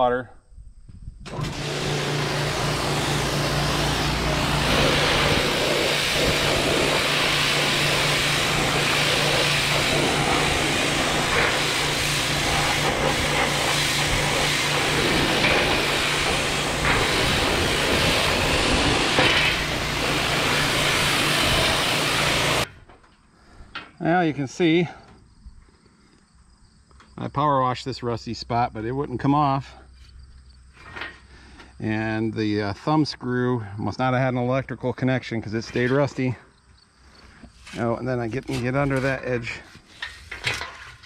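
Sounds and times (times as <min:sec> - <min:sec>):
motor hum: 0:01.3 - 0:22.6
pressure washer spray hissing on metal: 0:01.3 - 0:22.7.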